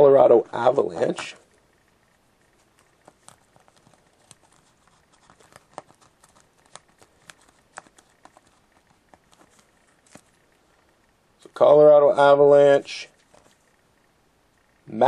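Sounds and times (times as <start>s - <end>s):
fingernail scratching card: 2.5s - 10.5s.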